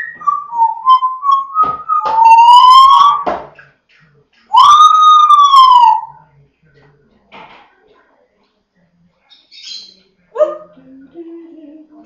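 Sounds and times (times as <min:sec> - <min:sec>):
parrot whistling: 0:00.0 - 0:03.3, 0:04.5 - 0:06.2.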